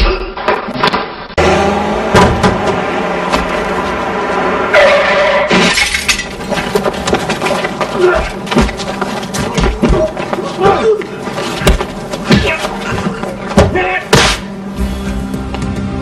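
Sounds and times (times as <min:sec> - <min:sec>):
glass breaking and shattering: 0:04.8 - 0:06.9.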